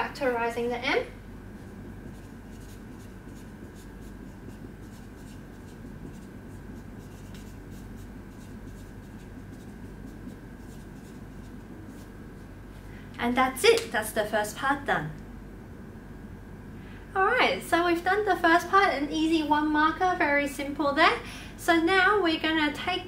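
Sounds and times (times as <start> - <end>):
faint steady hum: 0.0 - 23.0
marker writing on whiteboard: 2.1 - 12.1.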